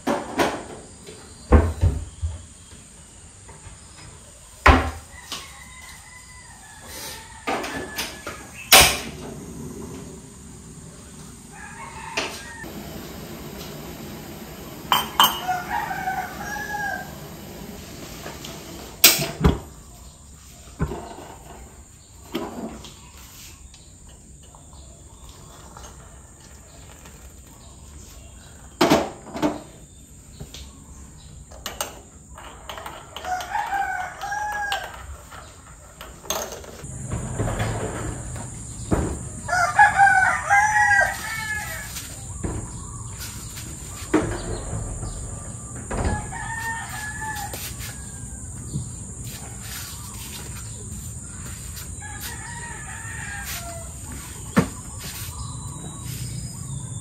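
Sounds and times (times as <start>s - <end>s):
rooster crowing: 5.0s - 10.1s, 11.0s - 18.3s, 33.2s - 35.4s, 37.9s - 42.3s, 44.0s - 50.4s, 51.5s - 54.5s.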